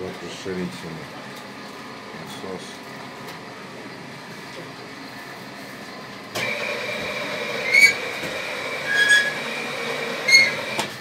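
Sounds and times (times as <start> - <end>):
high squeals: 7.6 - 8.1, 8.8 - 9.5, 10.2 - 10.7.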